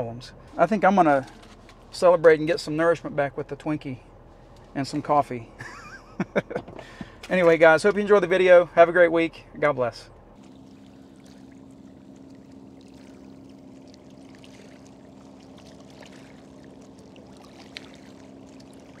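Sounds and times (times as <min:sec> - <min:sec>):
steady low hum: 0:00.0 - 0:19.0
water lapping on shoreline: 0:10.4 - 0:19.0.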